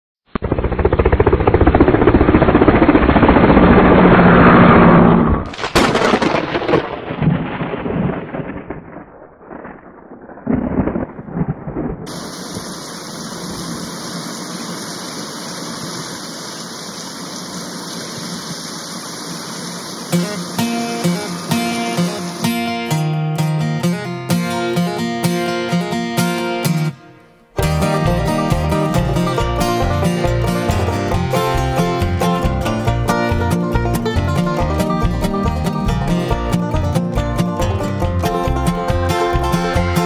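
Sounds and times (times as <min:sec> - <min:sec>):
sharp thunderclap: 0:00.4 - 0:13.9
thunder rumbling: 0:00.4 - 0:16.0
rain hissing: 0:10.8 - 0:23.0.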